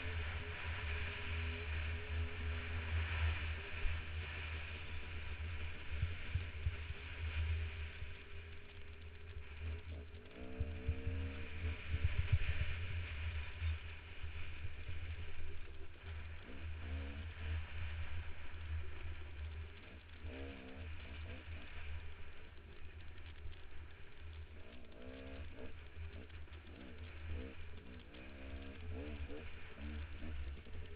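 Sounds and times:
dirt bike engine revving: 19.2 - 22.8, 24.6 - 30.9.

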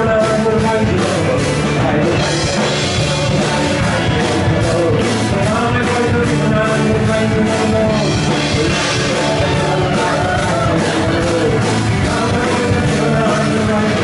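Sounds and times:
live band music: 0.0 - 14.0
person singing: 0.0 - 14.0
strummed guitar: 0.0 - 14.0.

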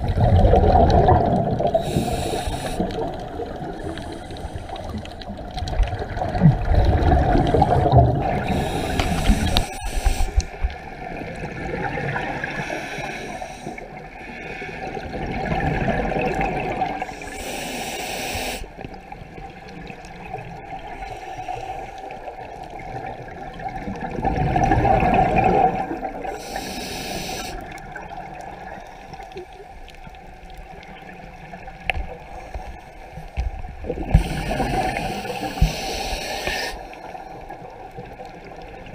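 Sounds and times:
bubbling exhalations underwater: 0.0 - 4.0, 4.8 - 10.4, 14.8 - 17.0, 23.0 - 26.3
regulator inhalation hiss: 1.8 - 3.1, 3.8 - 5.2, 8.4 - 10.6, 12.6 - 13.8, 17.1 - 18.8, 26.3 - 27.6, 34.1 - 37.1.

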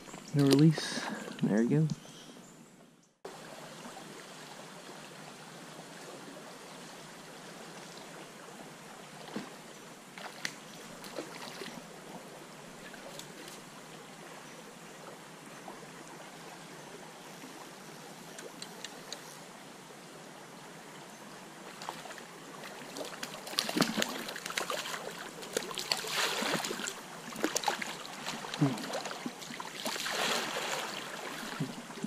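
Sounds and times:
faint clicks and splashes: 0.1 - 1.5, 10.2 - 11.8, 12.8 - 13.7, 18.3 - 19.4, 21.7 - 31.8
stream water rushing: 3.3 - 32.0.

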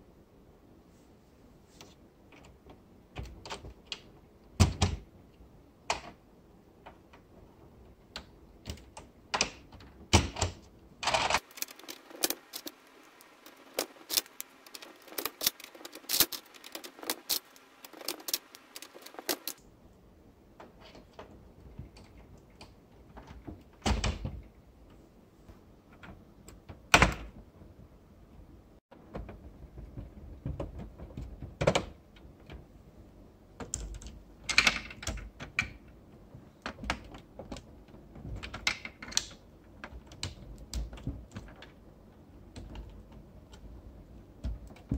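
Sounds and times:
plastic parts clicking: 8.1 - 19.6, 36.6 - 41.8.

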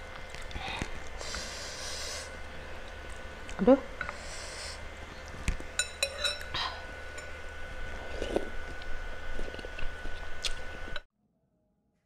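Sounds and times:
cutlery clinking on ceramic bowl: 5.8 - 6.5.

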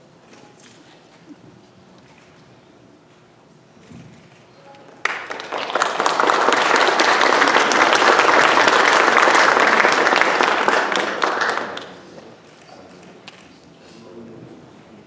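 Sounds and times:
audience applauding: 5.0 - 12.1.

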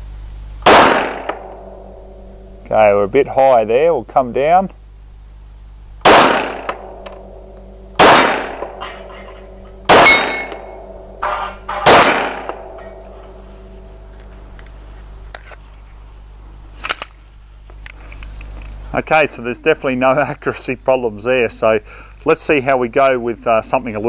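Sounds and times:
pistol shots echoing: 0.6 - 2.5, 6.0 - 14.1
steel targets ringing: 0.7 - 2.7, 6.1 - 14.6.

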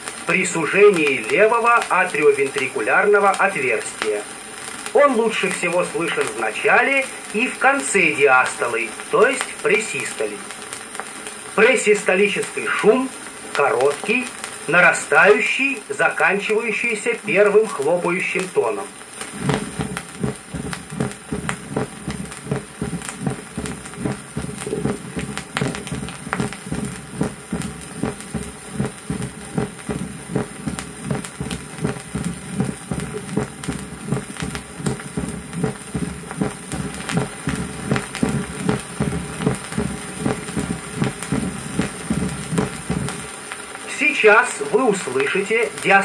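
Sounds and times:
record hiss and crackle: 0.0 - 46.0
heartbeat with murmur: 19.2 - 43.4.

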